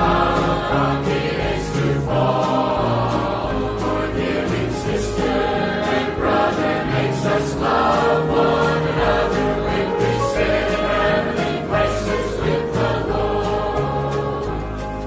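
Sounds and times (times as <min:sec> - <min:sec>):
choir singing a hymn: 0:00.0 - 0:15.0
instrumental accompaniment: 0:00.0 - 0:15.0.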